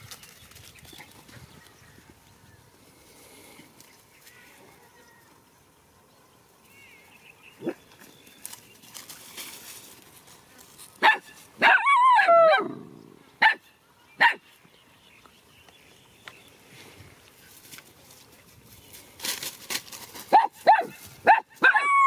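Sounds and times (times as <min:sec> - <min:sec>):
dog barking: 0:11.0 - 0:12.8, 0:13.4 - 0:14.4, 0:20.3 - 0:21.9.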